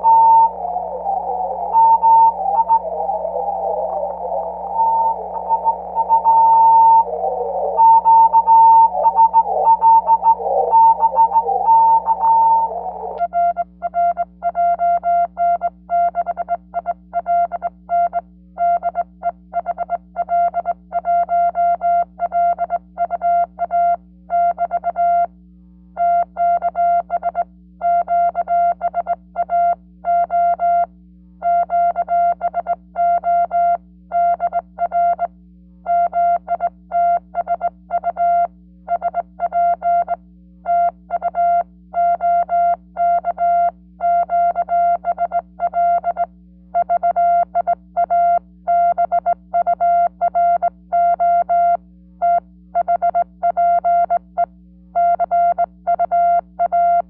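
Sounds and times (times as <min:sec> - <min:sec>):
radio band noise: 0:00.0 - 0:13.2
low hum: 0:00.0 - 0:13.6
morse code tone: 0:00.0 - 0:16.7.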